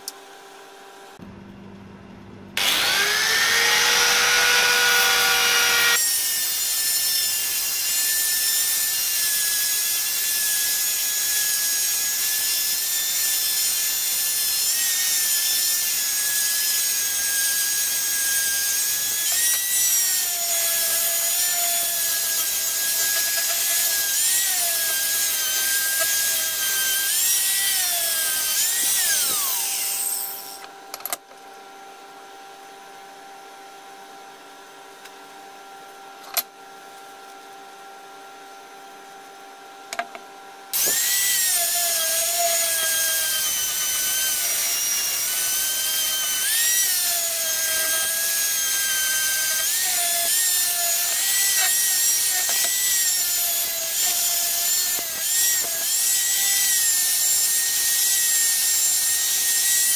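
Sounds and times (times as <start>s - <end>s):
angle grinder sanding metal: 2.6s - 30.6s, 40.8s - 59.9s.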